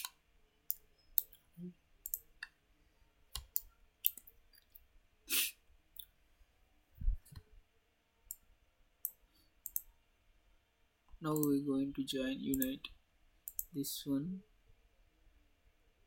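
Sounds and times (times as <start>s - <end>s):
computer mouse clicking: 0.0s - 1.4s, 2.0s - 2.6s, 3.3s - 4.3s, 9.0s - 9.9s, 11.3s - 11.6s, 12.5s - 12.8s, 13.5s - 13.8s.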